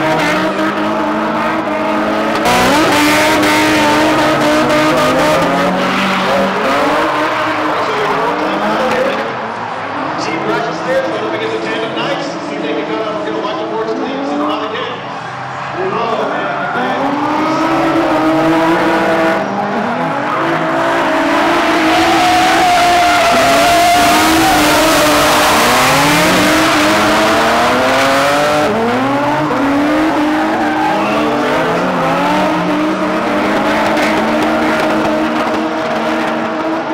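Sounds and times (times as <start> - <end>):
car engines revving: 0.0 - 36.9
tyre squeal: 21.4 - 27.5, 30.2 - 31.8.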